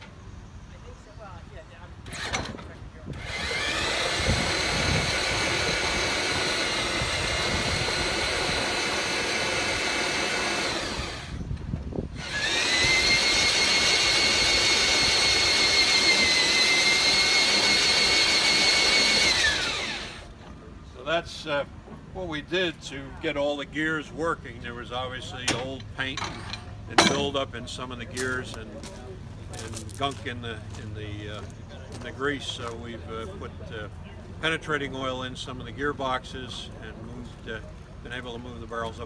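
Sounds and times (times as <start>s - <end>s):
electric drill whining: 3.1s - 11.5s, 12.1s - 20.3s.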